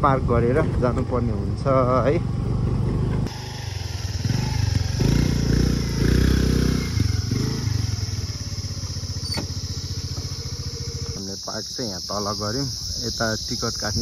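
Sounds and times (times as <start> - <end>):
motor scooter engine: 0.6 - 11.2.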